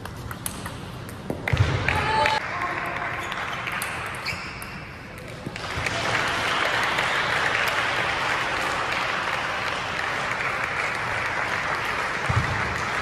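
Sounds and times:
spectators clapping: 0:01.8 - 0:04.2, 0:05.3 - 0:13.0.

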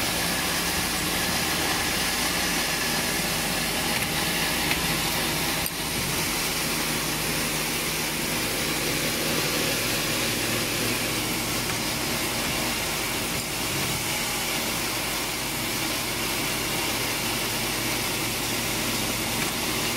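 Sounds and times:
low electrical hum: 0:00.0 - 0:19.9
welding machine whirring hiss: 0:00.0 - 0:19.9.

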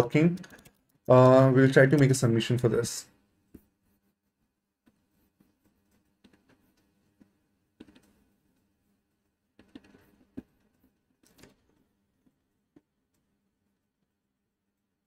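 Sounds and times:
keyboard and mouse clicks: 0:00.3 - 0:02.2, 0:05.8 - 0:08.2, 0:09.6 - 0:11.8.

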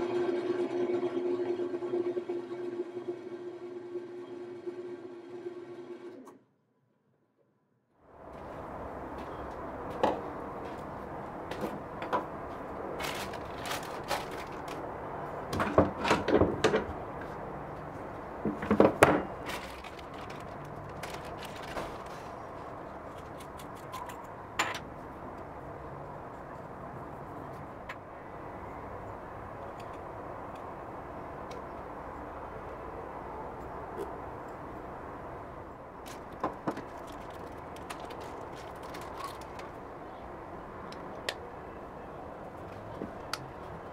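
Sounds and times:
plastic zip bags crinkling: 0:13.0 - 0:14.9, 0:19.3 - 0:22.4, 0:36.1 - 0:39.8.

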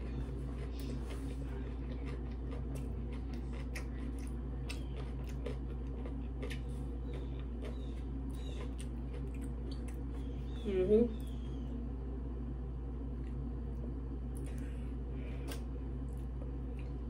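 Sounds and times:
chewing and mouth smacks: 0:00.0 - 0:10.5, 0:14.3 - 0:14.8, 0:15.4 - 0:17.0
low background hum: 0:00.0 - 0:17.0.

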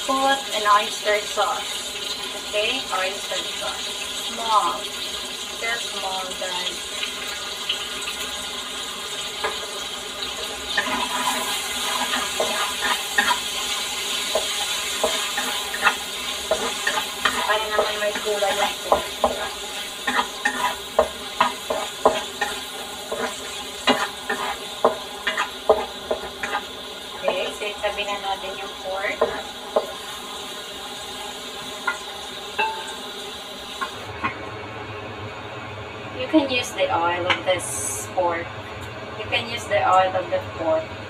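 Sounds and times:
meat sizzling in a wok: 0:00.0 - 0:34.5
spatula scraping a wok: 0:08.8 - 0:28.2.

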